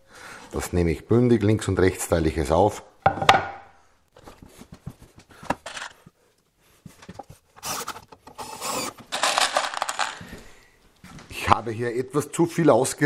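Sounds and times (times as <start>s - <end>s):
wooden board knocked onto frame: 3.1s - 3.6s
drill cutting into wood: 7.6s - 9.0s.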